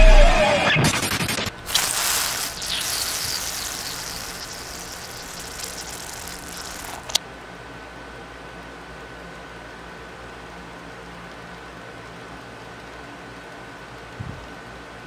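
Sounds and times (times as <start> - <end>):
hissing rush: 1.5 - 7.2.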